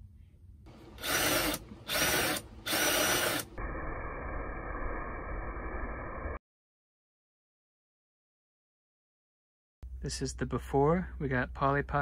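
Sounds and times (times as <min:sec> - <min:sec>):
cordless drill boring wood: 0:00.7 - 0:03.6.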